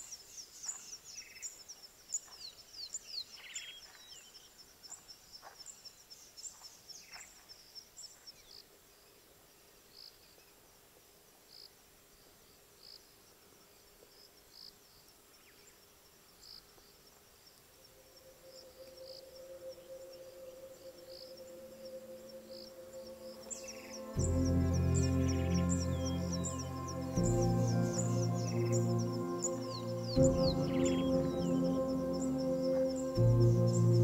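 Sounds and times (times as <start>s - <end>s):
insects chirping: 11.4s - 34.0s
birds chirping: 18.5s - 34.0s.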